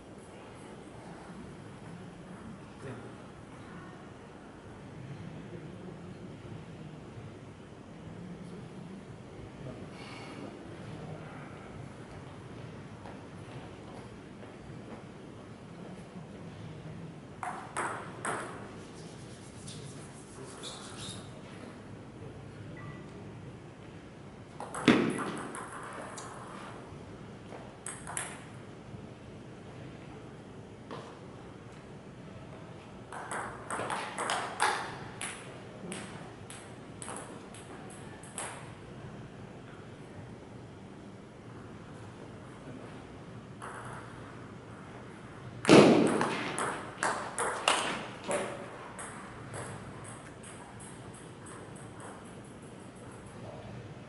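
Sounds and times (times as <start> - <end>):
table tennis ball bouncing: 17.4 - 18.7, 24.6 - 26.4, 27.8 - 28.5, 33.1 - 38.7, 43.6 - 44.2, 45.6 - 52.6.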